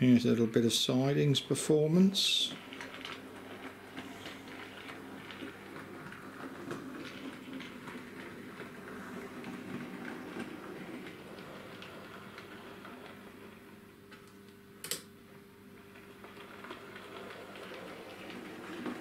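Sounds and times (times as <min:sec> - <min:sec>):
electric motor hum: 0:00.9 - 0:15.0, 0:15.6 - 0:19.0
wheels clicking over rail joints: 0:02.4 - 0:13.6, 0:16.0 - 0:19.0.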